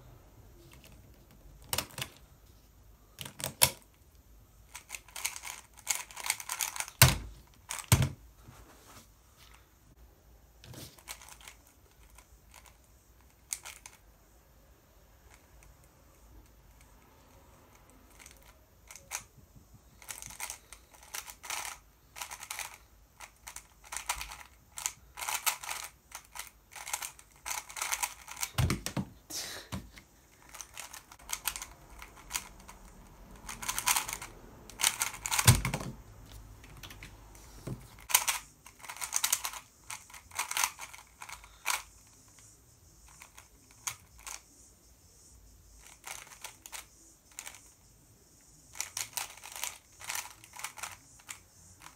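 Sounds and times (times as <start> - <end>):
plastic puzzle cube clicking: 0.7 - 2.2, 3.2 - 3.9, 4.7 - 8.1, 11.0 - 14.0, 17.8 - 19.3, 20.0 - 29.0, 30.4 - 35.9, 38.0 - 42.2, 45.8 - 47.7, 48.7 - 51.9.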